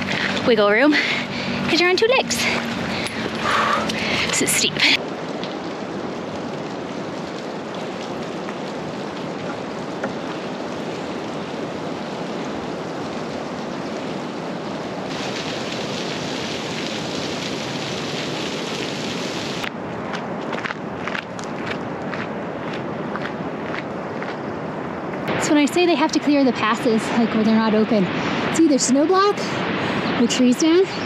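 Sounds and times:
running water rushing: 0.0s - 21.1s.

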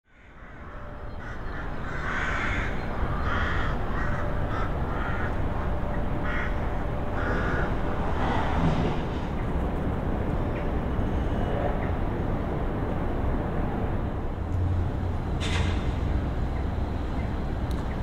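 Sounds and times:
crows cawing: 0.1s - 8.0s
low outdoor rumble: 0.2s - 18.0s.

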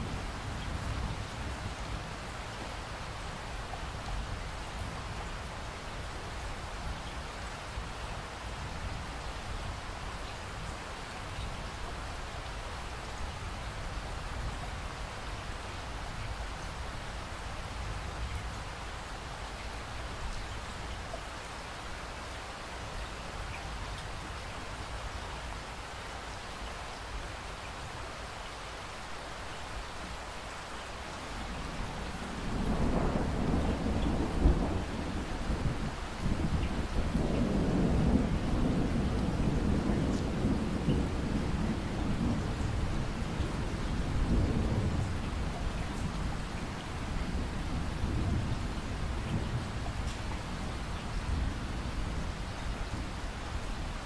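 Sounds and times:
steady rainfall: 0.0s - 54.0s
thunder rumbling: 31.8s - 52.3s.

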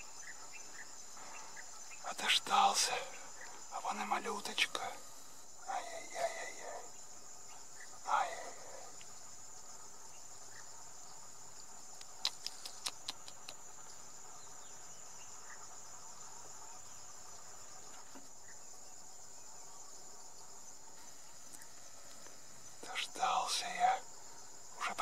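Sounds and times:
crickets singing: 0.0s - 25.0s
sharp clicks: 12.0s - 13.6s.

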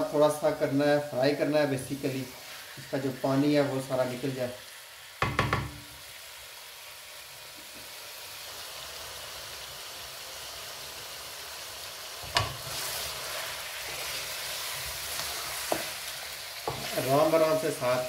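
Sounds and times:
oil sizzling with frying chicken: 0.0s - 18.0s
wooden spoon knocking pan: 5.2s - 5.9s.

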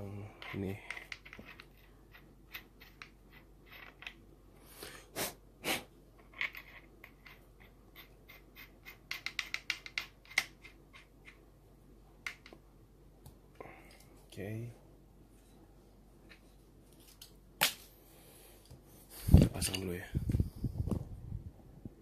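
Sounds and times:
small metal parts clicking and scraping: 0.3s - 4.2s, 6.2s - 11.1s.

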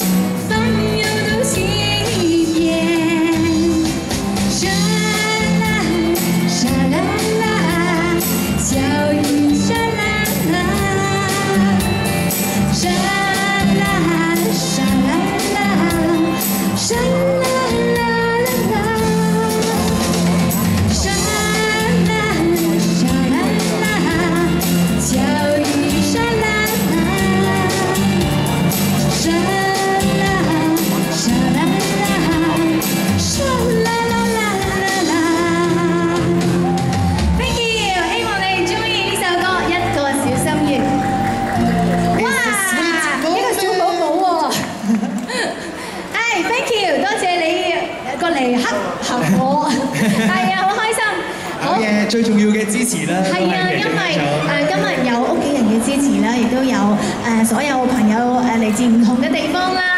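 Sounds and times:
instrumental accompaniment: 0.0s - 44.2s
woman singing pop song: 0.0s - 51.8s, 53.2s - 59.9s.

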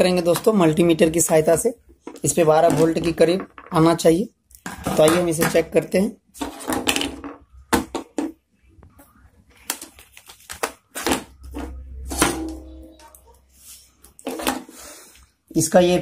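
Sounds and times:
objects clicking and knocking on wood: 1.3s - 3.8s.

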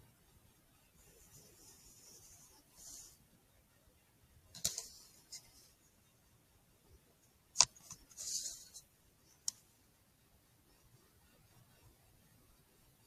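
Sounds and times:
scratchy rustling: 1.0s - 3.2s, 7.7s - 8.9s.

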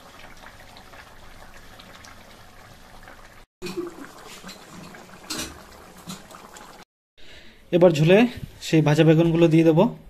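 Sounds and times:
curry bubbling at a simmer: 0.0s - 6.8s.

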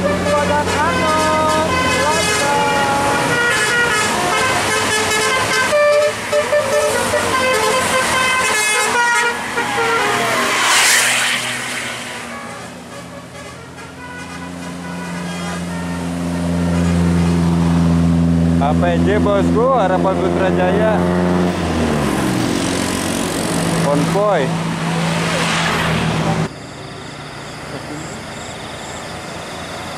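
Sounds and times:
multi-tone air horn tune: 0.0s - 11.0s, 11.9s - 17.2s
bus passing with rushing hiss: 6.0s - 13.2s, 13.9s - 18.7s, 22.5s - 29.9s
deep engine hum: 14.9s - 26.5s.

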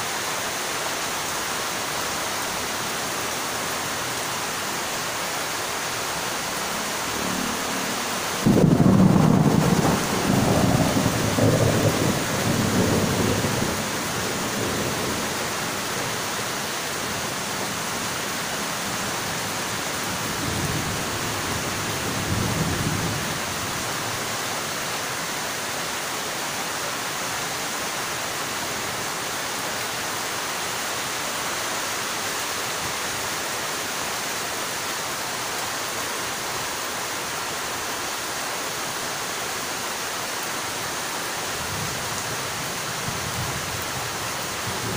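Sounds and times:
heavy rain: 0.0s - 44.9s
rolling thunder: 8.4s - 15.4s.

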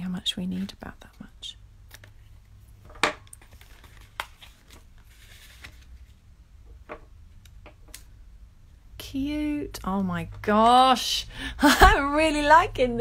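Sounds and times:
light clicks and rustles of vinyl: 3.3s - 6.2s.

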